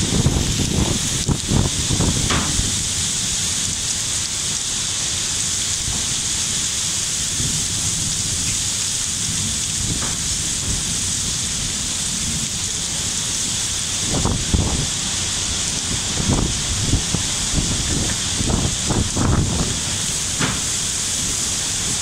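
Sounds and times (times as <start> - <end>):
heavy rain pouring: 0.0 - 22.0
low rumble: 9.2 - 22.0.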